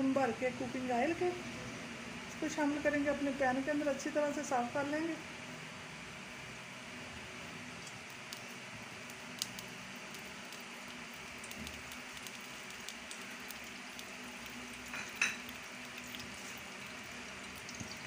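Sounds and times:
oil sizzling in a pan: 7.8 - 18.0.

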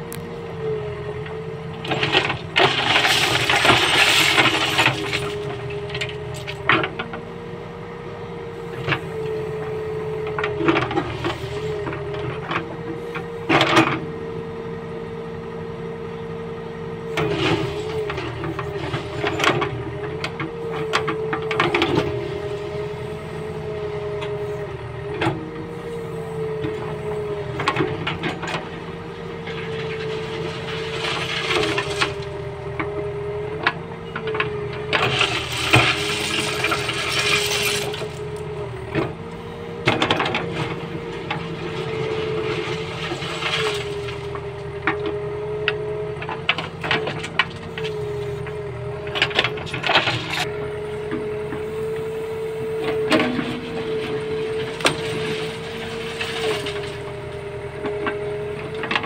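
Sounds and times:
backhoe engine and hydraulics: 0.0 - 59.0.

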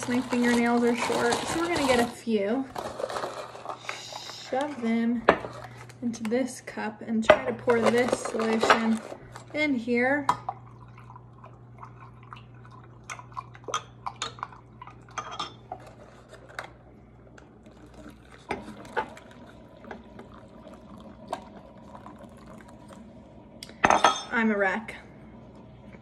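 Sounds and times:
liquid pouring into filter: 10.4 - 15.2, 17.2 - 23.7.

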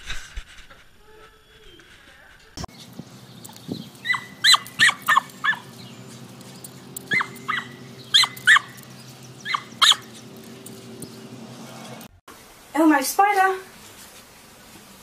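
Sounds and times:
small dog yipping: 4.0 - 5.7, 7.0 - 10.2.

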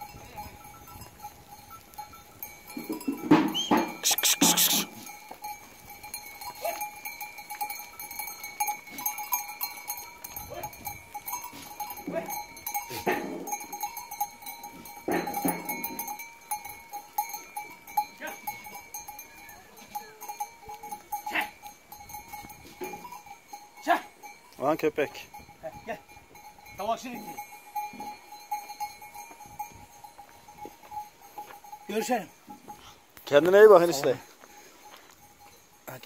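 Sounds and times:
goat bells clinking: 0.0 - 36.0
goats bleating: 3.9 - 5.1.

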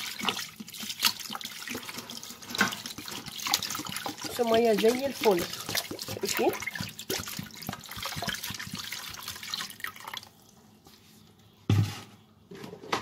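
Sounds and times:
water pouring into basin: 0.0 - 10.4
thump: 11.7 - 12.1.

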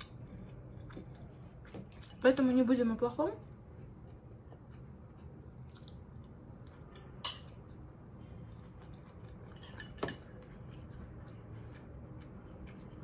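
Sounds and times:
fork clinking on ceramic dishes: 7.0 - 7.6, 9.5 - 10.3.

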